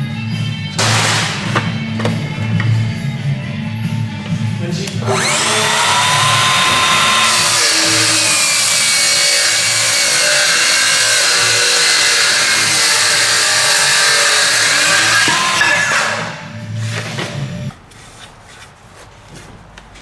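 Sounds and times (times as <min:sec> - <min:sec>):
circular saw cutting wood: 0:05.0 - 0:17.0.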